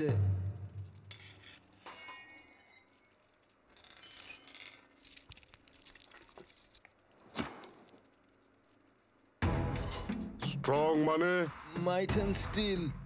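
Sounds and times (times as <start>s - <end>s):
crackling and clinking bite: 2.1s - 7.1s.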